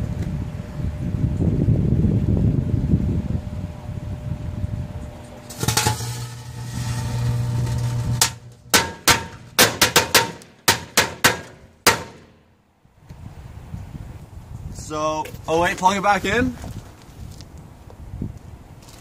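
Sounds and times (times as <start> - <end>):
microwave oven buzz: 0.0 - 9.6
firecracker bangs: 5.4 - 12.4.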